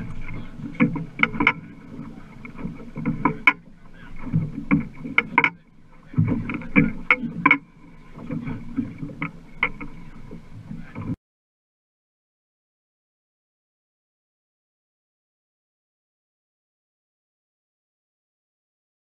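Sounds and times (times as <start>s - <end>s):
boat fittings knocking and rattling: 0.0s - 11.2s
water and hull rumbling: 0.0s - 11.2s.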